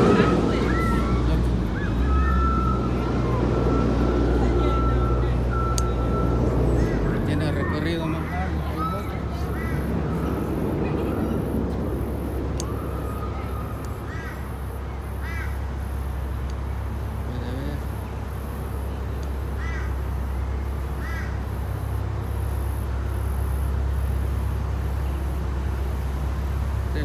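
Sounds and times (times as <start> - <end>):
crow cawing: 6.7 - 7.6, 9.4 - 9.9, 14.0 - 15.6, 19.5 - 20.0, 21.0 - 21.5.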